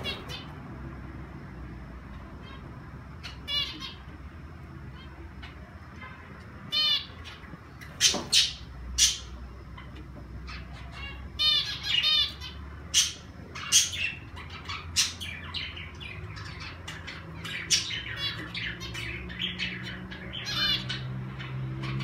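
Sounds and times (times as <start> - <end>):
birds chirping and calling: 0.0 - 1.0, 2.1 - 22.0
low steady hum: 0.0 - 22.0.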